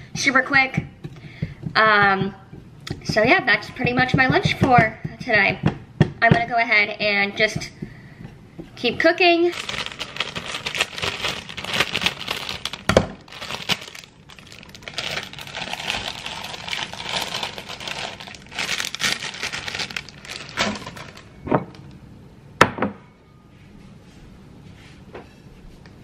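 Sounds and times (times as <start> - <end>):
plastic bag crinkling: 9.4 - 21.4.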